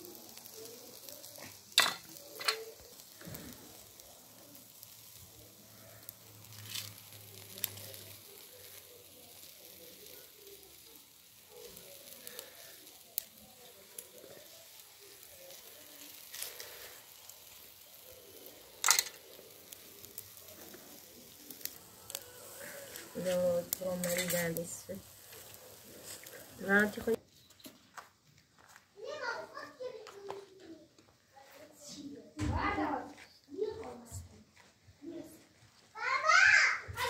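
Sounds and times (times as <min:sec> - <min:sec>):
meat sizzling on a grill: 0:00.0 - 0:27.2, 0:35.0 - 0:37.0
faint crackle: 0:00.0 - 0:37.0.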